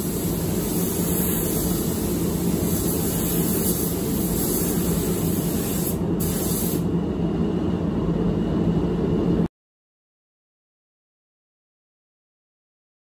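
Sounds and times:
spray gun hissing: 0.0s - 6.9s.

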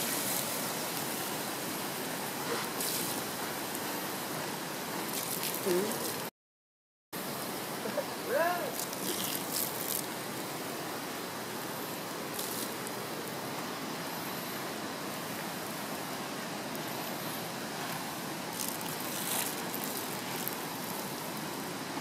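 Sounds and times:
embers hissing: 0.0s - 6.3s, 7.6s - 13.6s, 16.7s - 21.7s
faint crackles: 8.6s - 10.1s, 12.3s - 13.0s, 17.8s - 21.5s.

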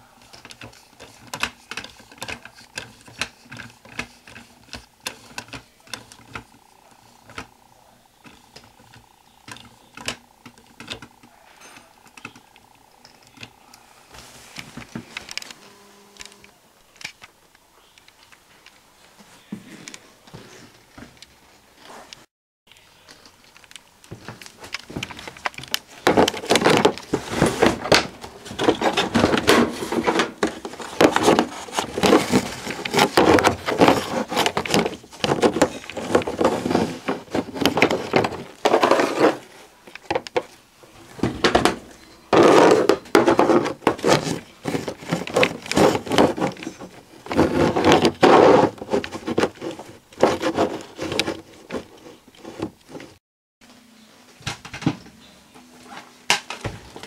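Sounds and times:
handling noise rubbing and knocking: 0.0s - 7.6s, 23.2s - 53.2s.

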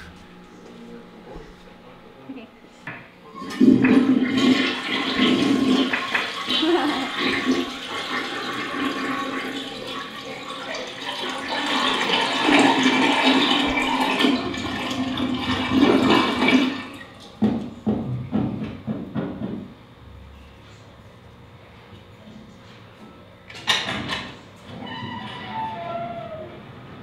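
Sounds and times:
toilet flushing: 3.3s - 19.0s.

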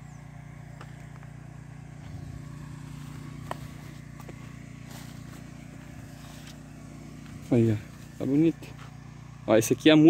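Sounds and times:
small pump engine humming: 0.0s - 10.0s.

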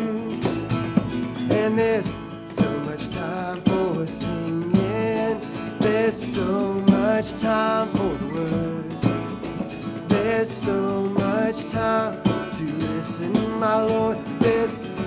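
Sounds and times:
acoustic guitars strumming: 0.0s - 15.0s
cajon beat: 0.0s - 15.0s
lead melody with bending notes: 0.0s - 15.0s.

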